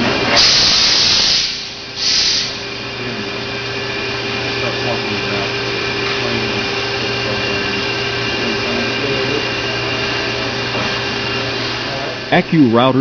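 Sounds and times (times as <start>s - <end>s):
router spindle cutting: 0.0s - 13.0s
dust suction hissing: 0.4s - 2.6s.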